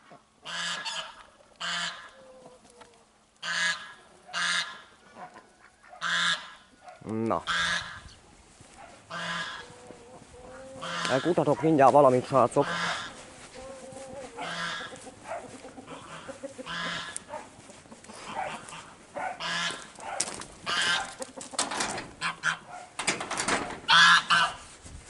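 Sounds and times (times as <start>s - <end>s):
poultry calling harshly: 0.4s - 2.6s, 3.4s - 6.8s, 7.4s - 8.2s, 8.8s - 23.0s, 23.8s - 24.6s
footsteps on gravel: 7.5s - 22.7s.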